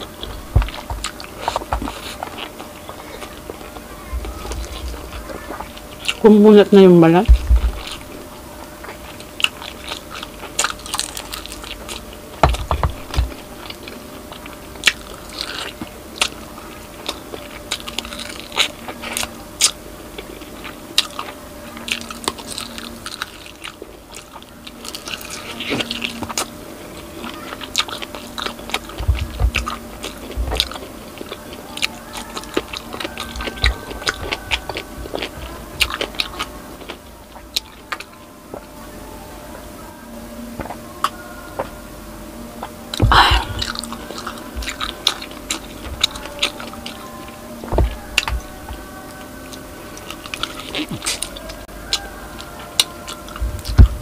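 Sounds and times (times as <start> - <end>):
crunching fried pork skin: 0.0 - 38.8, 42.6 - 54.0
wet chewing: 0.0 - 39.6, 42.5 - 54.0
low thumps: 7.2 - 7.8, 47.7 - 48.8.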